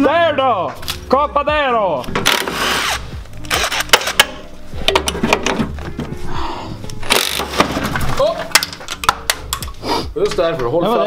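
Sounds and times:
hand tools clanking and rattling: 3.8 - 6.2, 7.0 - 10.8.

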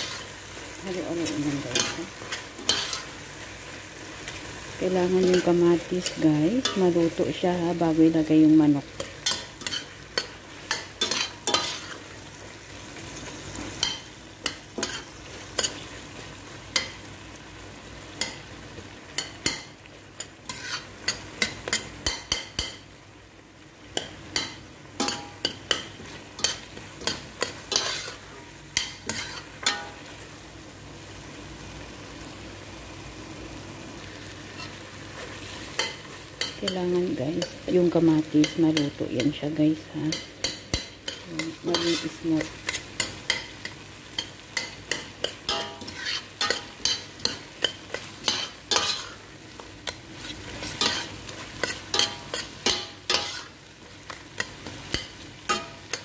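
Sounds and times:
food sizzling in a pot: 0.0 - 56.0
metal spoon clinking and scraping: 1.5 - 3.1, 9.0 - 12.0, 24.0 - 30.0, 40.1 - 49.2, 49.8 - 53.5, 54.1 - 56.0.

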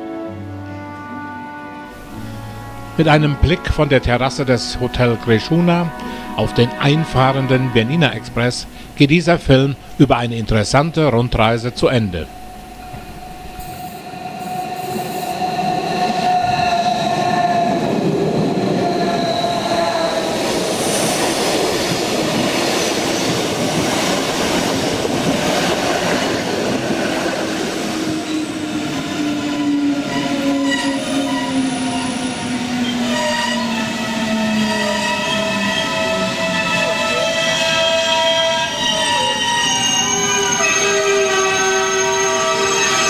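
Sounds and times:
electric train drive whine: 8.2 - 43.0
wheels rumbling on rail: 12.1 - 43.0.

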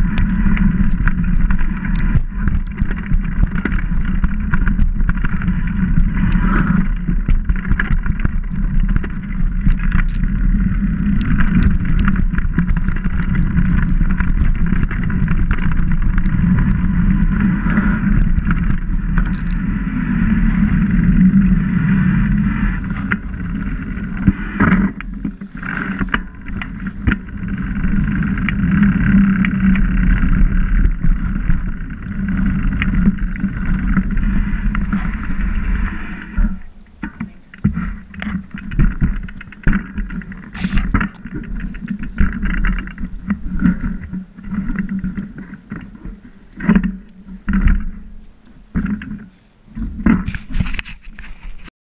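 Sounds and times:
bike rattling clicks and knocks: 0.0 - 17.0, 17.8 - 19.6
wind rush on microphone: 0.0 - 48.2, 49.8 - 51.7
bike tyre noise: 0.0 - 51.7.

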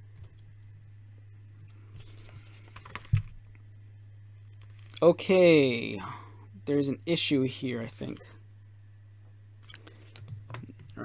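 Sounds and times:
steady low hum: 0.0 - 11.0
paper rustling: 1.9 - 3.4.

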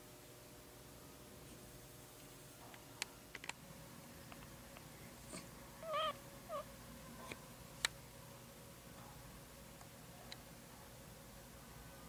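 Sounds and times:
puppy squeaking: 5.8 - 6.6.

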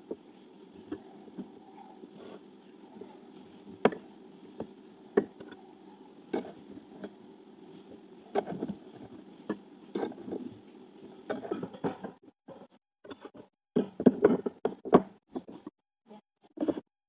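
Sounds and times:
steady low hum: 0.0 - 12.2.

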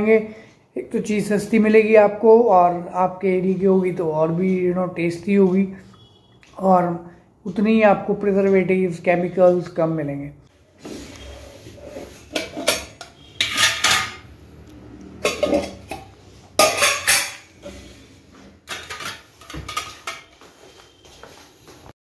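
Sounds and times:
metal containers clinking: 11.7 - 14.3, 15.1 - 20.4.

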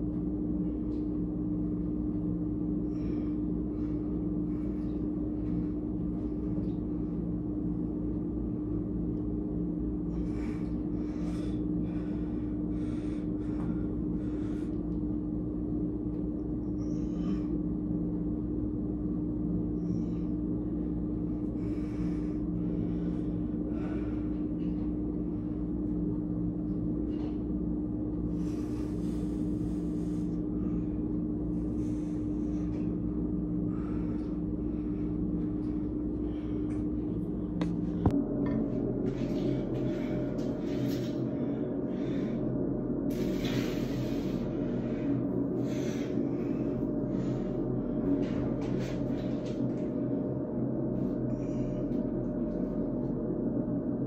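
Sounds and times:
low rumble: 0.0 - 54.0
steady mechanical hum: 0.0 - 54.0
man breathing: 2.2 - 8.1, 9.9 - 18.2, 19.8 - 26.0, 26.6 - 53.3.

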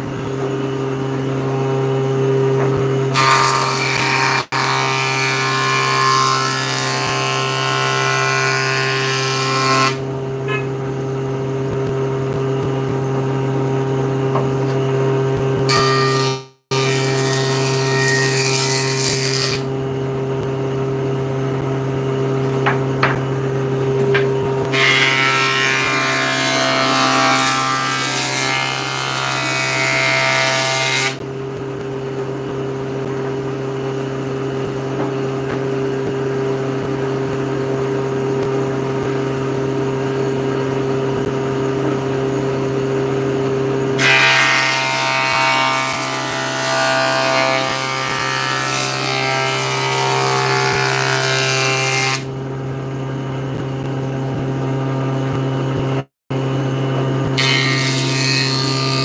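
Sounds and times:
table saw motor hum: 0.0 - 59.0
saw blade cutting wood: 15.7 - 19.7, 24.0 - 31.2, 57.4 - 59.0.

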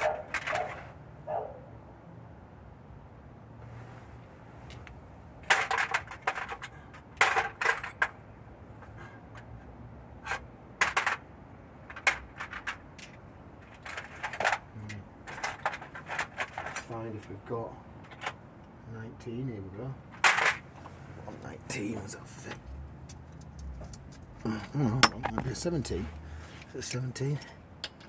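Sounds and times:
metal sockets clinking: 24.6 - 25.7.

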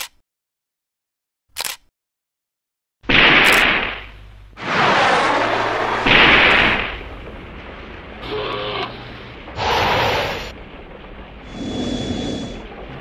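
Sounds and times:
explosion blasts: 3.1 - 13.0.

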